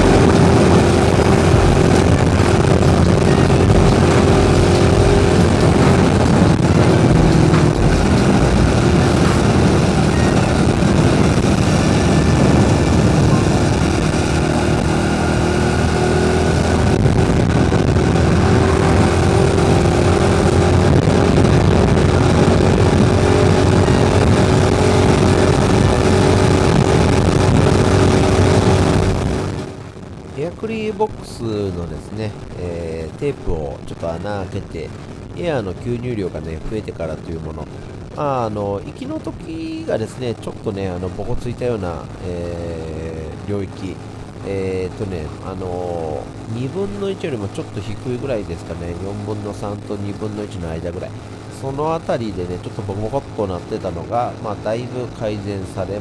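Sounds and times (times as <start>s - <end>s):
small motorcycle engine running: 0.0s - 29.8s
wind and road rush: 0.0s - 56.0s.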